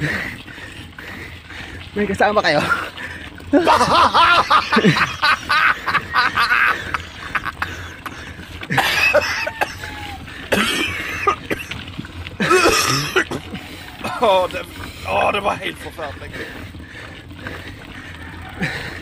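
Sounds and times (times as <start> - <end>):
person coughing: 10.5 - 11.8, 12.4 - 13.5.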